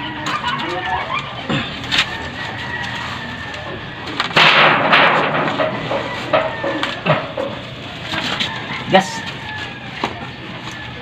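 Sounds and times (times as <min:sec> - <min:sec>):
trunk scraping and rustling: 0:01.7 - 0:10.8.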